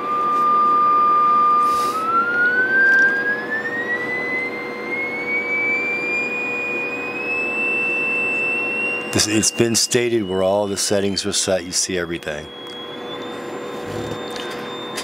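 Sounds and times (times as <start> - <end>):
test tone rising in pitch: 0.0 - 15.0.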